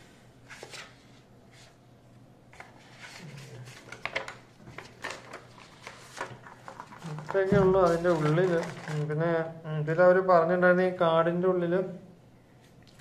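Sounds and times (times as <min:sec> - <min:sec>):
card packaging rustling: 0:02.6 - 0:09.2.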